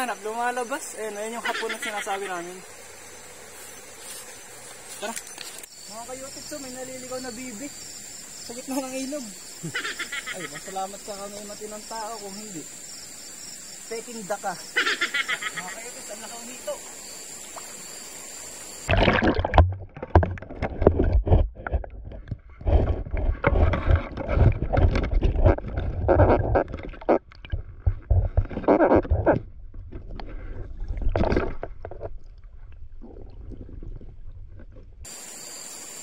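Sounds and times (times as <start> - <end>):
water sloshing and gurgling underwater: 18.5 - 35.2.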